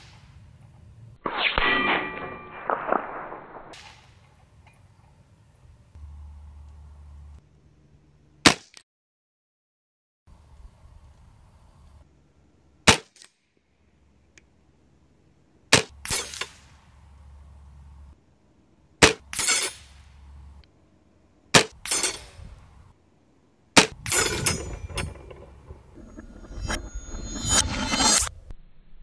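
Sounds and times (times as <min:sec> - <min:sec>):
pellet clanging on steel target: 0:01.3 - 0:04.0, 0:19.0 - 0:20.0, 0:21.6 - 0:22.4.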